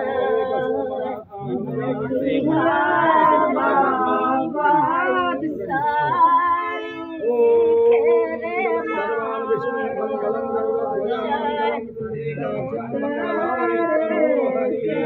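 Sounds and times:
women singing unaccompanied: 0:00.0 - 0:15.0.

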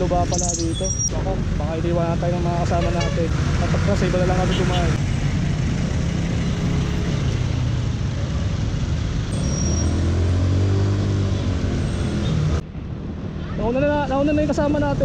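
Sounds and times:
road noise: 0:00.0 - 0:15.0.

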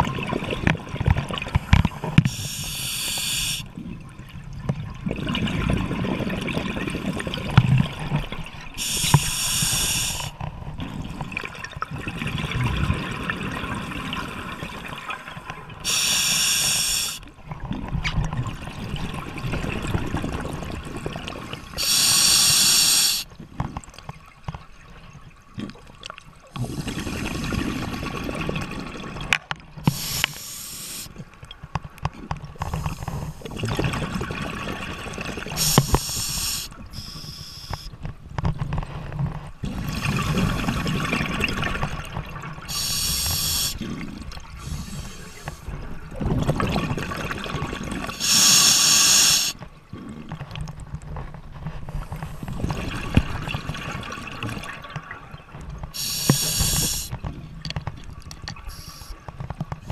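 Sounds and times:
regulator hiss: 0:02.3 - 0:03.6, 0:08.8 - 0:10.3, 0:15.9 - 0:17.2, 0:21.8 - 0:23.3, 0:29.9 - 0:31.1, 0:35.6 - 0:37.9, 0:42.7 - 0:43.8, 0:48.2 - 0:49.6, 0:56.0 - 0:57.1
bubbling exhalations: 0:42.7 - 0:50.5.

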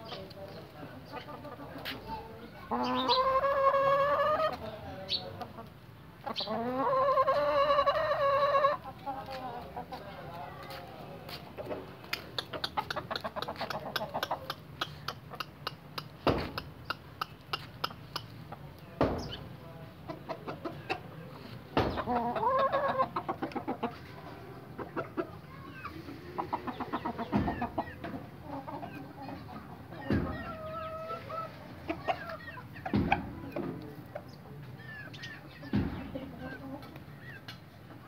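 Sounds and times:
chickens clucking: 0:00.0 - 0:38.0
sharp knocks: 0:16.2 - 0:16.7, 0:19.0 - 0:19.4, 0:21.8 - 0:22.1, 0:30.1 - 0:30.5, 0:32.9 - 0:33.7, 0:35.7 - 0:36.1.

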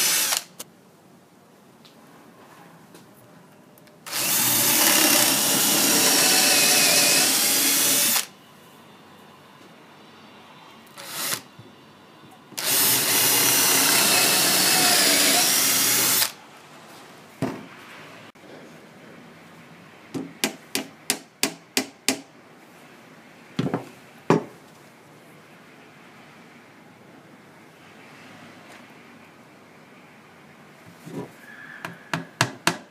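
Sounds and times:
drill boring into wood: 0:00.0 - 0:00.6, 0:04.1 - 0:08.3, 0:11.0 - 0:11.5, 0:12.6 - 0:16.4.

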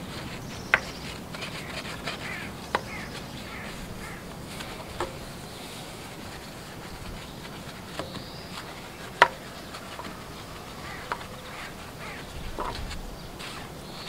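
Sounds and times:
faint steady hiss: 0:00.0 - 0:14.0.

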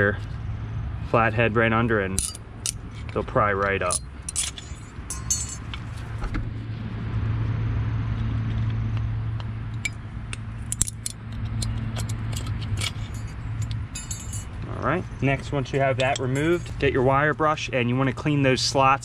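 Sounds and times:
low engine hum: 0:00.0 - 0:19.0
screwdriver clinking on metal: 0:02.2 - 0:02.8, 0:03.8 - 0:05.8, 0:10.7 - 0:14.6, 0:15.9 - 0:16.8.

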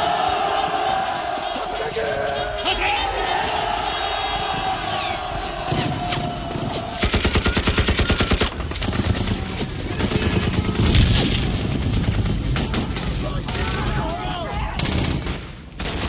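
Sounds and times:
massed rifle and machine-gun fire: 0:05.6 - 0:13.9, 0:14.8 - 0:16.0
machine gun burst: 0:06.4 - 0:13.2.

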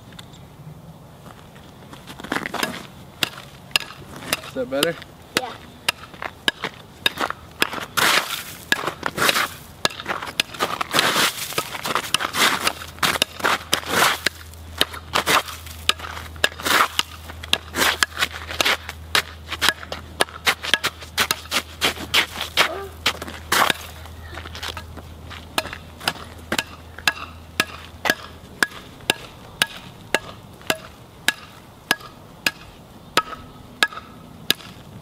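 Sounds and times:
ice crunching and crackling: 0:08.0 - 0:15.9.

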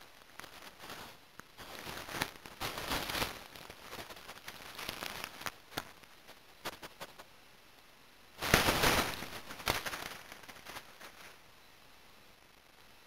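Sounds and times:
animal rustling against camera: 0:00.0 - 0:07.3, 0:08.4 - 0:11.4.

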